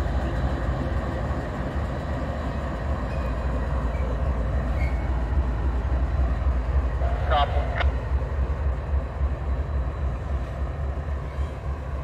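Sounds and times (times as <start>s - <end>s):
diesel locomotives rumbling: 0.0s - 12.0s.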